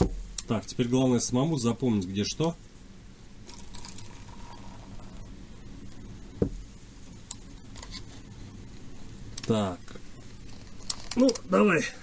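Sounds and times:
knock on table: 6.4s - 6.6s.

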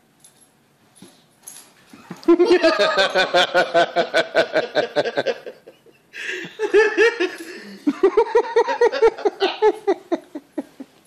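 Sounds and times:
person laughing: 2.0s - 11.0s.

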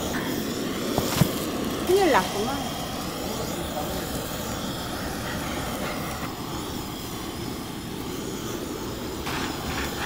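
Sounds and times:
blowtorch flame blowing: 0.0s - 10.0s.

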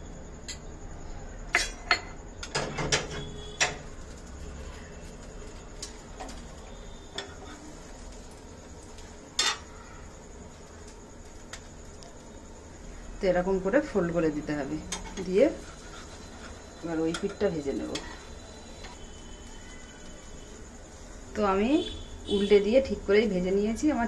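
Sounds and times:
metal utensils clinking on pan: 9.3s - 9.7s, 17.0s - 19.0s.

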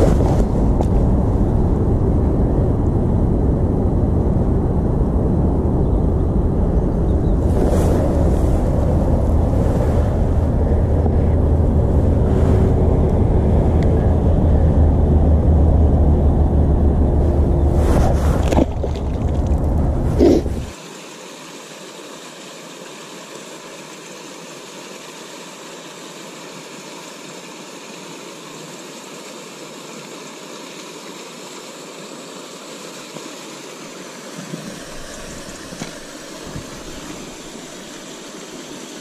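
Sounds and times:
water pouring from culvert: 17.2s - 21.1s, 29.2s - 39.0s.

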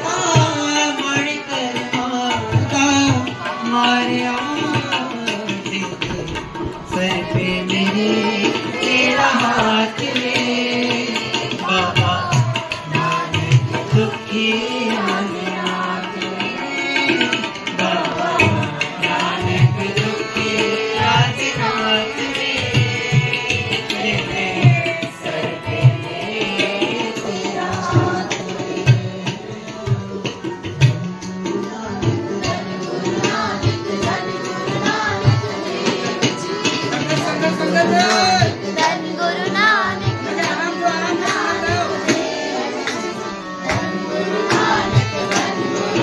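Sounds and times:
man singing a hymn: 0.0s - 30.4s
harmonium: 0.0s - 46.0s.

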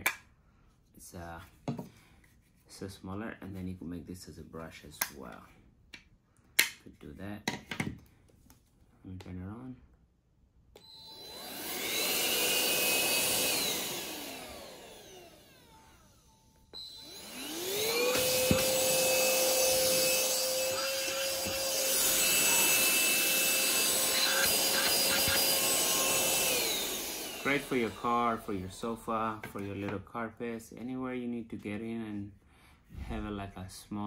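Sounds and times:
handheld vacuum motor running: 10.8s - 30.0s.

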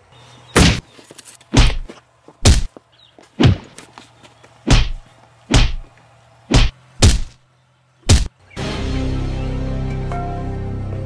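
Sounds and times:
baseball bat heavy thuds: 3.4s - 3.8s.

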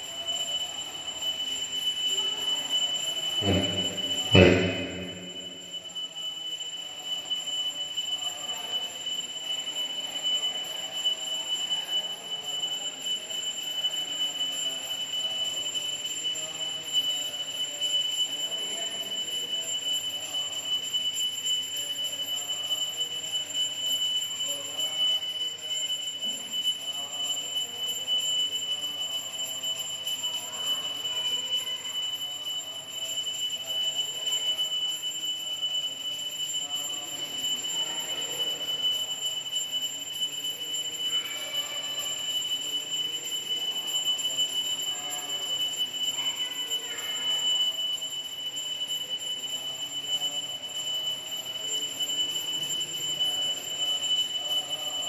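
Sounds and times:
steady high-pitched tone: 0.0s - 6.6s
faint indistinct voices: 0.0s - 55.0s.

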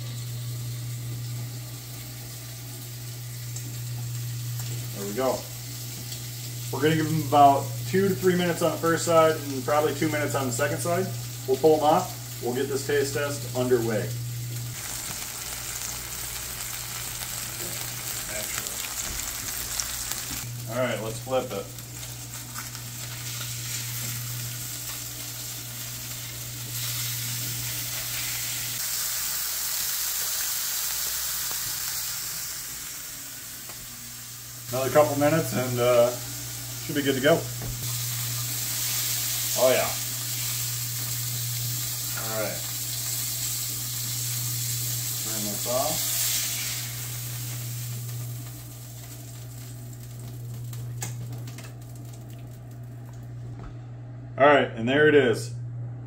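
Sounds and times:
fish sizzling in oil: 0.0s - 52.8s
steady low hum: 32.3s - 56.0s.

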